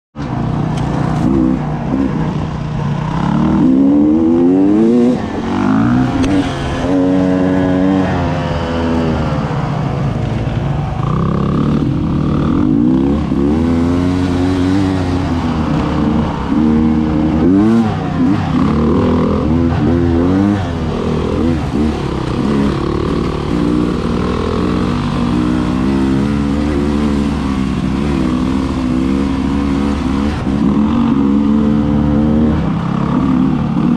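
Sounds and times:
dirt bike engine revving: 0.3s - 33.9s.

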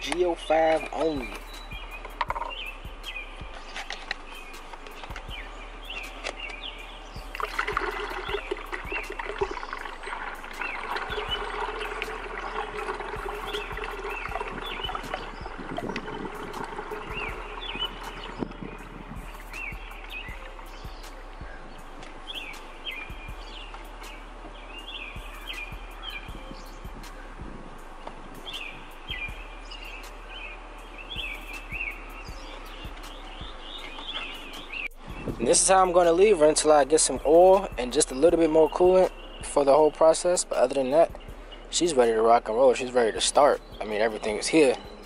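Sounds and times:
songbird chirping: 0.0s - 45.0s
liquid gurgling from plastic jug: 7.3s - 18.6s
steady background hiss: 15.0s - 38.0s.

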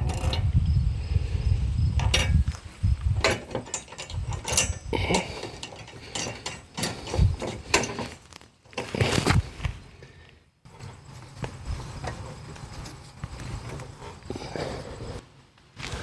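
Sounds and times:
metal clicks and scraping: 0.0s - 0.6s, 2.0s - 9.4s.

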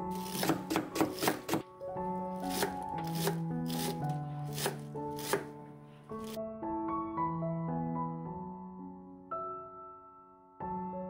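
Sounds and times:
background music with held notes: 0.0s - 11.0s
knife chopping on wooden board: 0.1s - 1.7s, 2.4s - 5.6s.

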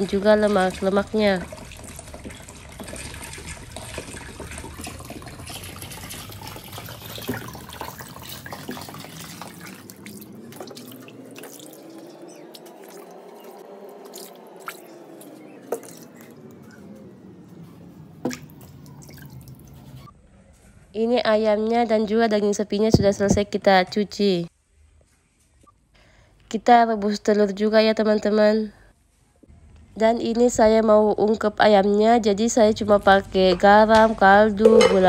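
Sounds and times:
sharp drips and clicks: 0.0s - 16.8s, 18.2s - 20.1s
water sloshing: 0.0s - 20.1s.

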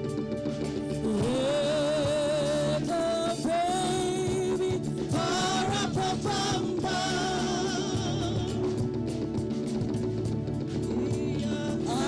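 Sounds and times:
musical accompaniment: 0.0s - 12.0s
woman singing lead: 1.0s - 9.0s, 10.9s - 12.0s.

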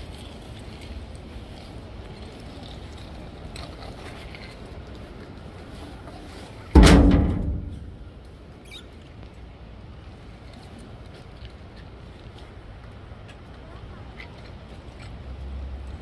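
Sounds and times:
metal bin door clanging shut: 6.8s - 8.0s.

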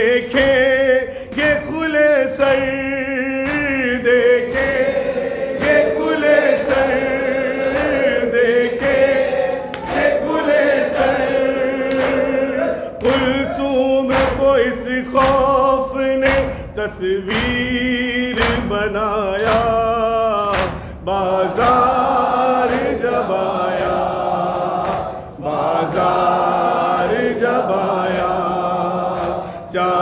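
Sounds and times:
man singing lament: 0.0s - 4.9s, 11.7s - 23.5s, 29.4s - 30.0s.

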